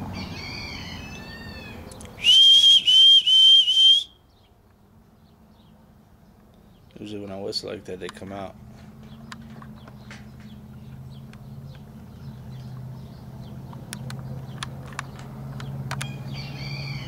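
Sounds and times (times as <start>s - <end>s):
sharp ticks: 11.2s - 11.9s, 13.7s - 16.1s.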